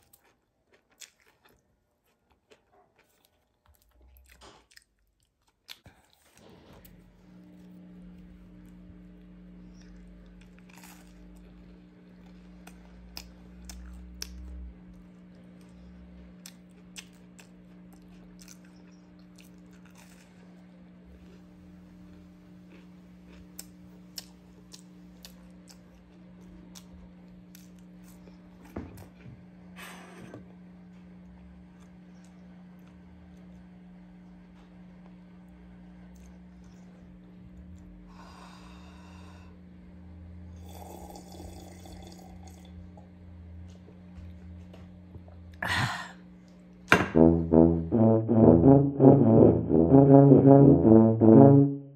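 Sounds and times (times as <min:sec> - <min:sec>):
steady low hum: 0:05.8 - 0:51.9
brass instrument tune: 0:47.0 - 0:51.9.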